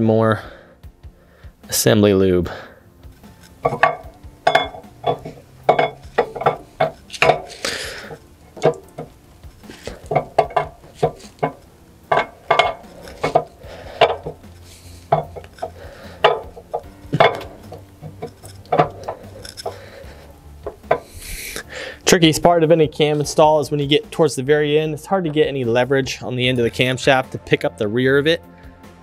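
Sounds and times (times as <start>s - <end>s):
camshaft clinking against metal: 3.3s - 21.1s.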